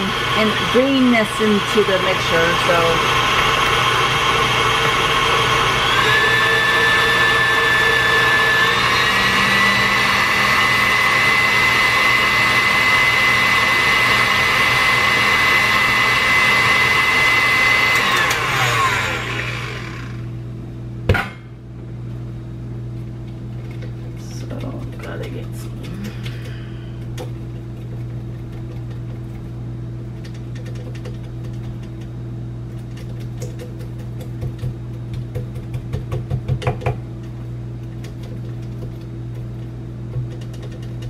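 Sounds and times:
electric mixer motor whine: 0.0 - 20.4.

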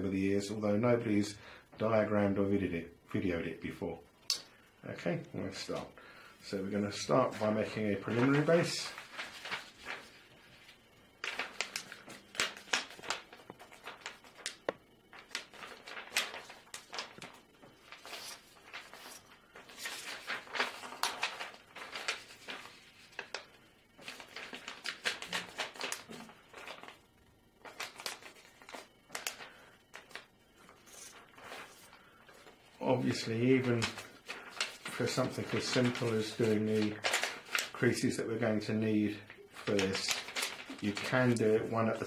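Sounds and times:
paper being folded and creased: 7.0 - 38.0, 39.5 - 42.0.

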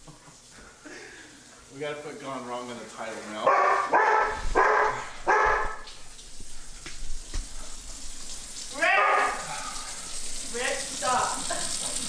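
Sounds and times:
dog barking: 3.4 - 5.9, 8.8 - 9.5.

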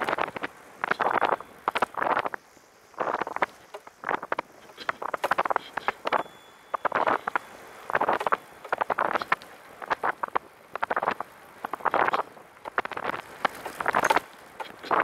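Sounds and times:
wind and rolling noise: 0.0 - 15.0
trike rattling and clattering: 11.8 - 15.0.

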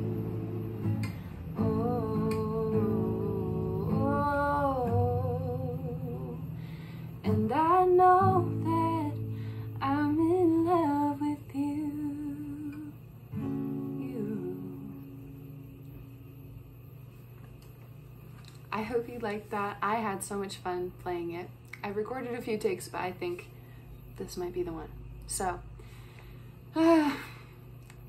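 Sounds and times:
acoustic guitar strumming: 0.0 - 11.3, 13.3 - 16.1
woman singing: 0.0 - 15.6.

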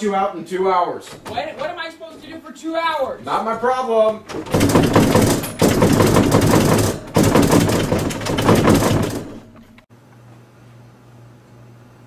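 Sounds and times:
banging and rattling on door: 1.1 - 2.4, 3.6 - 9.8.

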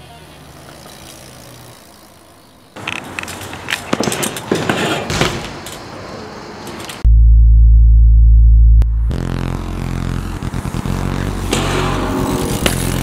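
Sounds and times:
rolling tyres rumble: 0.0 - 7.1, 10.4 - 13.0
bmx bikes hitting handrails: 2.8 - 5.8, 11.4 - 13.0.

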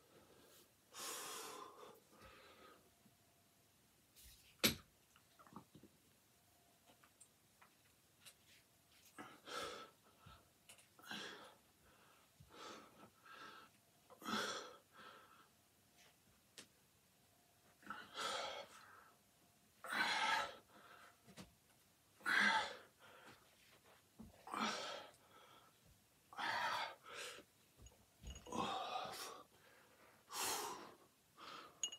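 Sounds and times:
man breathing hard: 28.4 - 31.8.

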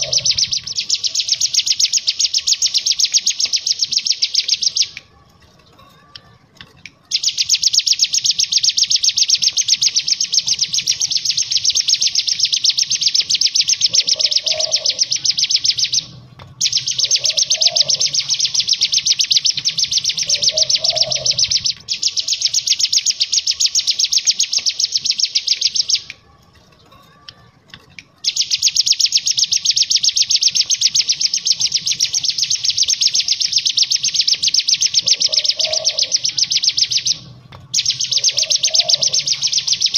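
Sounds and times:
bird buzzing trills: 0.0 - 4.8, 7.2 - 26.0, 37.8 - 39.9.

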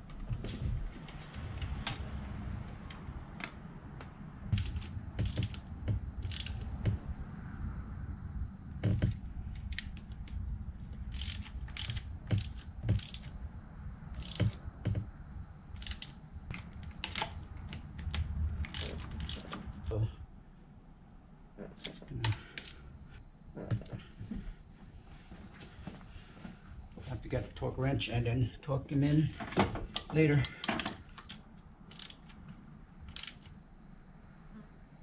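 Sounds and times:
hand ratchet clicking: 4.5 - 6.9, 11.0 - 13.4, 14.1 - 14.7, 15.8 - 16.2, 16.9 - 19.6, 30.8 - 32.4, 33.1 - 33.6.

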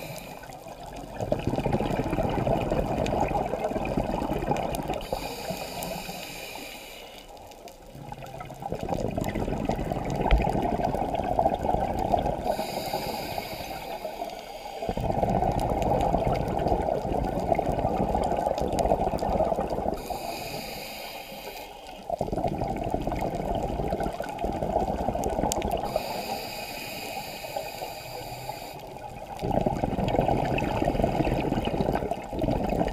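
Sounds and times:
diver inhaling through regulator: 0.0 - 0.6, 5.0 - 7.4, 12.4 - 15.3, 20.0 - 22.1, 25.8 - 29.0
exhaled bubbles rushing: 0.6 - 5.1, 7.9 - 12.6, 14.9 - 20.0, 22.2 - 26.0, 29.0 - 32.9.

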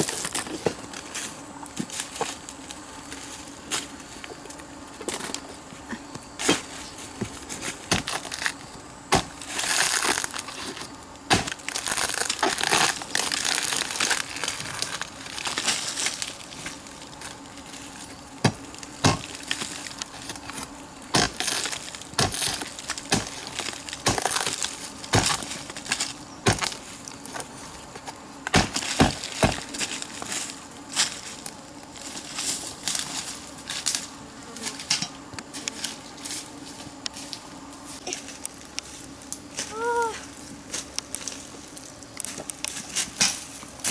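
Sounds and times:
rotten wood crunching and tearing: 0.0 - 34.1
machete chopping log: 9.1 - 9.4, 11.3 - 11.6, 18.4 - 19.3, 21.1 - 21.4, 22.2 - 23.3, 24.0 - 24.5, 25.1 - 25.4, 26.4 - 26.7, 28.5 - 29.6.

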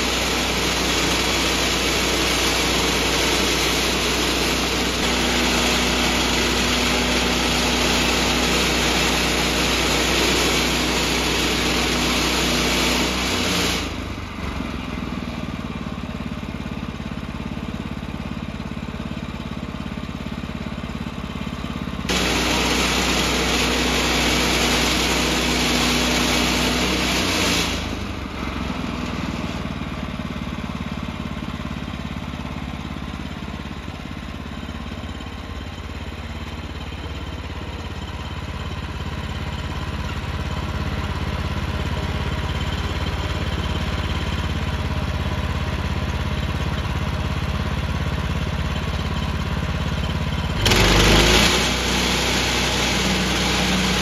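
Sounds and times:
band saw blade sawing log: 0.0 - 14.0, 22.1 - 28.1, 50.6 - 54.0
gasoline engine revving and idling: 0.0 - 54.0.

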